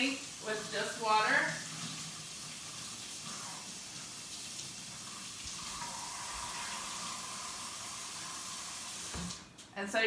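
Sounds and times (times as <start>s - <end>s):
tap running into a sink: 8.9s - 9.4s.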